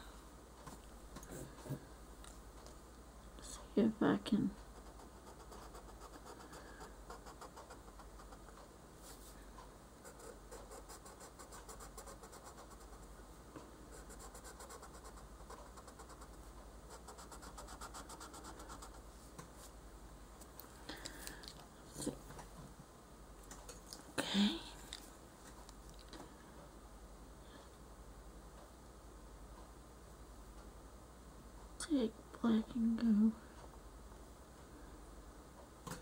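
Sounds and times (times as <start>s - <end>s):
pencil scratching on paper: 4.6s - 8.6s, 10.0s - 13.1s, 13.9s - 19.1s.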